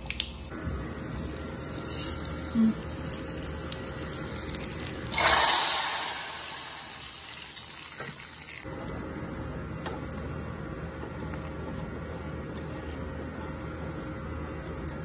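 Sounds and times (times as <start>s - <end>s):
hot oil sizzling in liquid: 0.0s - 8.7s.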